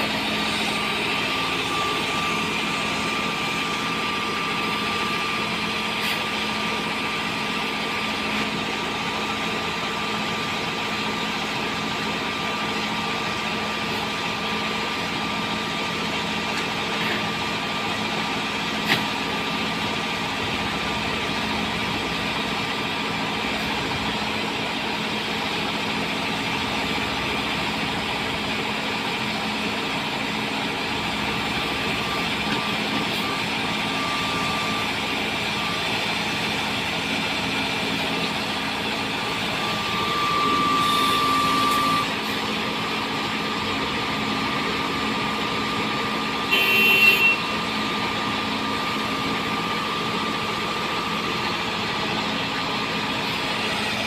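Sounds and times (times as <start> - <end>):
heavy diesel engines running: 0.0 - 54.0.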